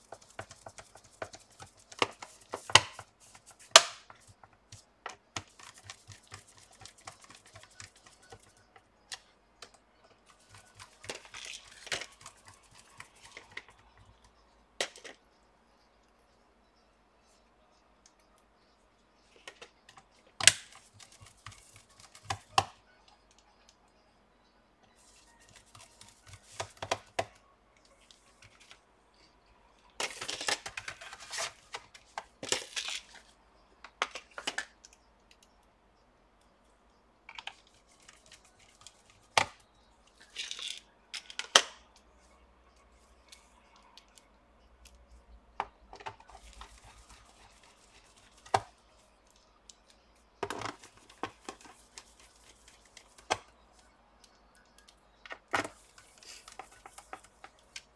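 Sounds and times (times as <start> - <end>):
gloved hands rubbing plastic: 46.2 - 48.7.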